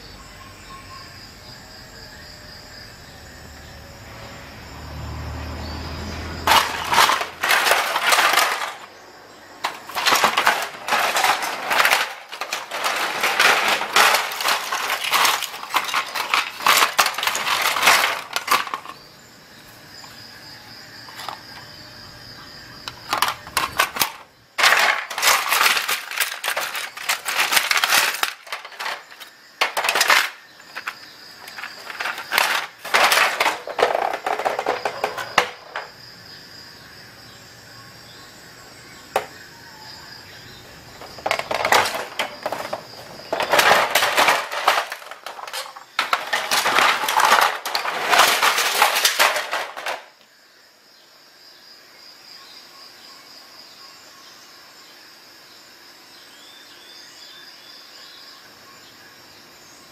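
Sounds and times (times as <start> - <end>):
plastic parts clattering and clicking: 6.4 - 9.0, 9.6 - 19.0, 21.1 - 21.7, 22.8 - 36.0, 39.1 - 39.4, 41.0 - 50.3.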